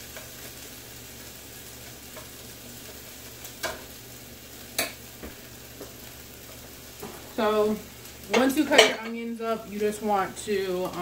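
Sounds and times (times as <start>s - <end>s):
sausages sizzling in a pan: 0.0s - 11.0s.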